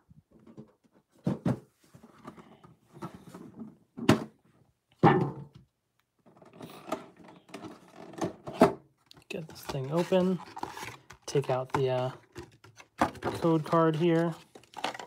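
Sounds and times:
thunk and rustling against tin: 0:05.0 - 0:05.6.

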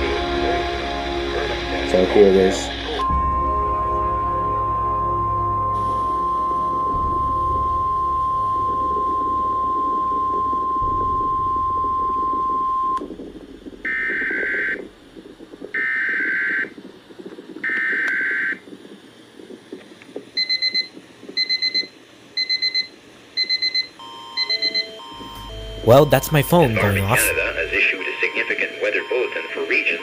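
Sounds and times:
phone emergency alert beeps: 0:20.4 - 0:30.0
weather radio alarm tone: 0:24.4 - 0:30.0.

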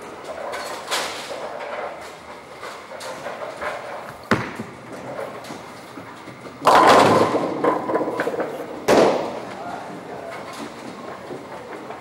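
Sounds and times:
machinery hum: 0:00.0 - 0:12.0
bowling ball thudding and rolling: 0:04.0 - 0:09.5
bowling pins crashing: 0:04.3 - 0:05.0, 0:06.6 - 0:09.4.

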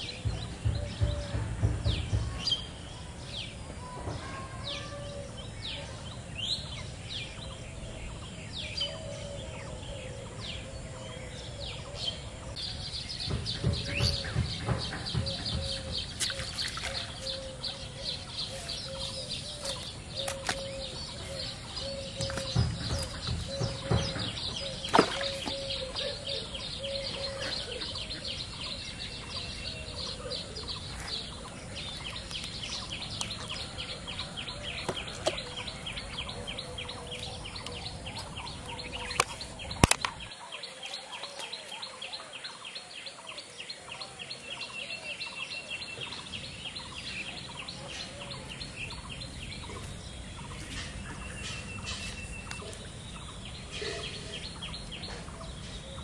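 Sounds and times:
sharp clicks: 0:39.1 - 0:40.2.

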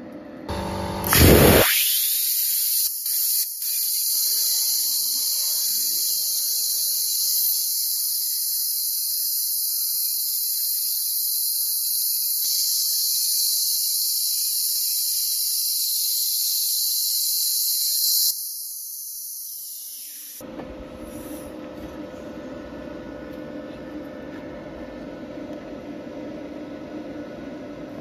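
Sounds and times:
plasma cutter hissing: 0:01.0 - 0:20.4, 0:21.0 - 0:21.6.

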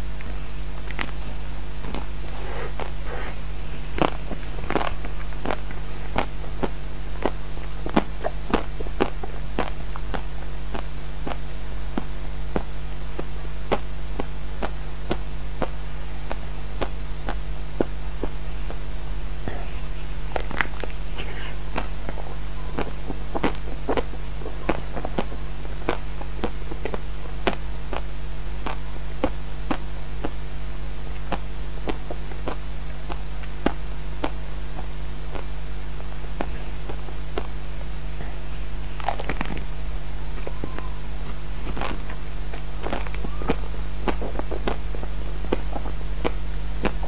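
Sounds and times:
crunchy eating and mouth clicks: 0:00.0 - 0:47.0
low hum: 0:00.0 - 0:47.0.

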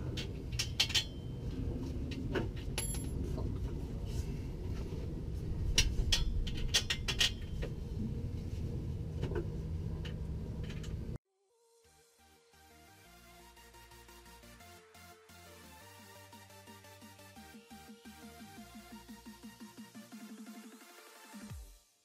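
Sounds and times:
steady low rumble: 0:00.0 - 0:11.2
metallic clinks and knocks: 0:02.6 - 0:03.4.

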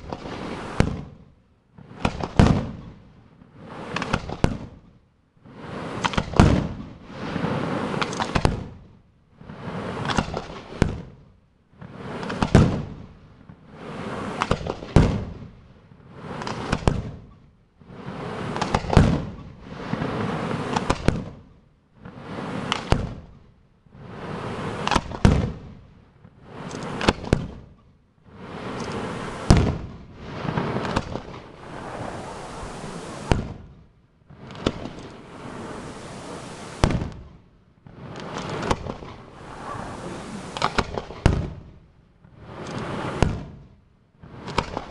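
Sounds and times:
firework shells bursting: 0:17.9 - 0:21.2, 0:24.0 - 0:25.6, 0:26.2 - 0:41.7, 0:42.4 - 0:43.5, 0:44.3 - 0:44.9.

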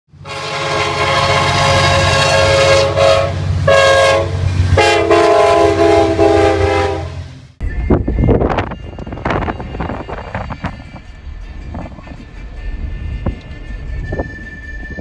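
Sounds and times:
passing train rumble: 0:00.1 - 0:15.0
locomotive horn blasts: 0:00.2 - 0:07.3, 0:08.2 - 0:11.2, 0:12.1 - 0:14.3.

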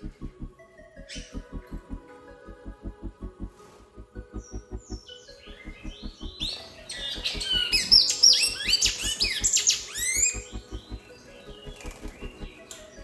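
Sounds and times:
background music with low beat: 0:00.0 - 0:13.0
finch singing whistled notes: 0:01.0 - 0:01.5, 0:04.2 - 0:13.0.

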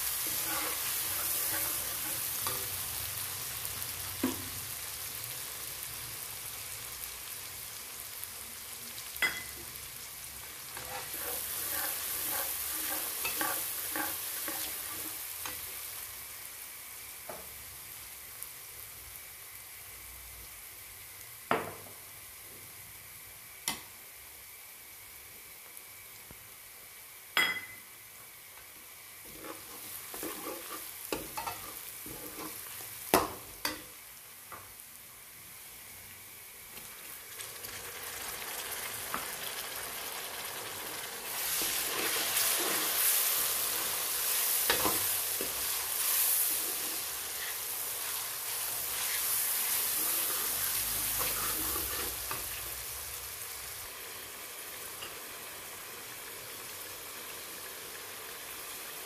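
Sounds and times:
onions sizzling in hot oil: 0:00.0 - 0:59.0
metal ladle stirring and scraping: 0:00.2 - 0:02.6, 0:10.8 - 0:15.1, 0:29.3 - 0:32.7, 0:51.1 - 0:52.4.

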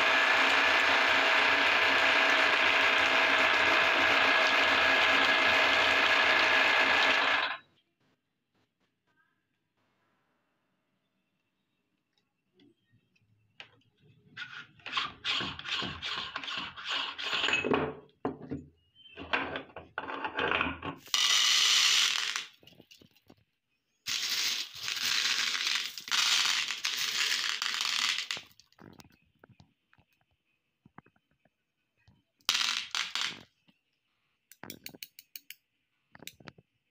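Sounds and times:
glass marbles clattering: 0:21.0 - 0:22.8, 0:24.1 - 0:29.0, 0:32.5 - 0:33.4.

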